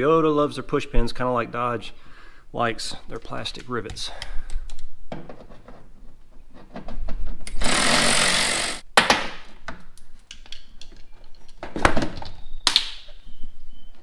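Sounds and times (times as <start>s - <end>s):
small power tool running: 7.5s - 8.8s.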